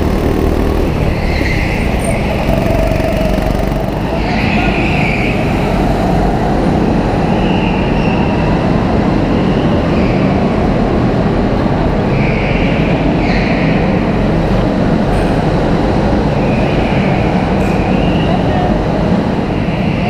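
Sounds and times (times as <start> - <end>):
go-kart engines droning: 0.0 - 20.0.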